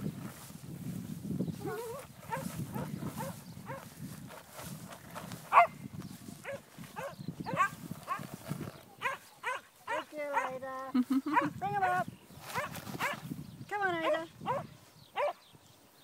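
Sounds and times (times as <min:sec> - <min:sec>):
alpacas humming and calling: 0:01.6 - 0:03.8.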